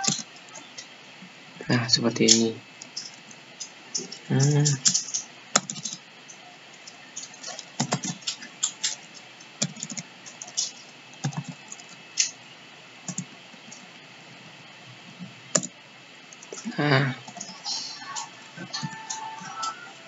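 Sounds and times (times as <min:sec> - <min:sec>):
typing on keyboard: 0:00.0 - 0:00.4, 0:02.8 - 0:06.0, 0:07.2 - 0:12.4, 0:13.1 - 0:13.8, 0:18.7 - 0:19.8.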